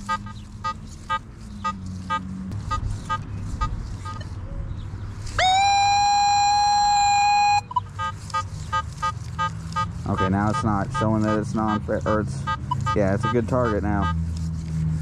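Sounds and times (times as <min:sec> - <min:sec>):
metal detector steady tone: 0:05.4 - 0:14.2.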